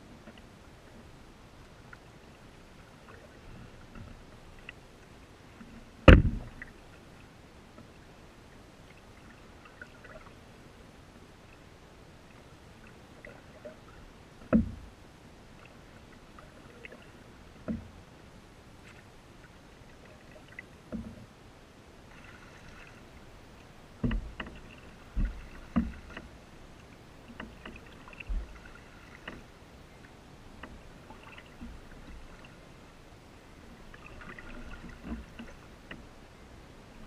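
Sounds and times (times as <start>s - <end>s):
faint water sounds: 0.0s - 37.0s
paddle knocking canoe hull: 6.0s - 6.8s, 14.4s - 14.9s, 23.9s - 29.5s.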